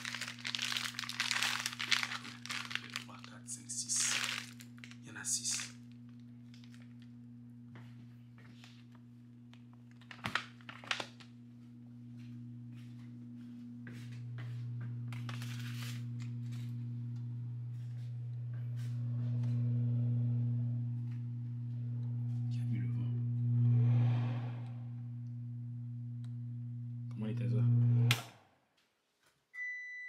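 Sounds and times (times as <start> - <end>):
handling rustle: 0.0 - 3.1
oven electrical hum: 0.0 - 28.5.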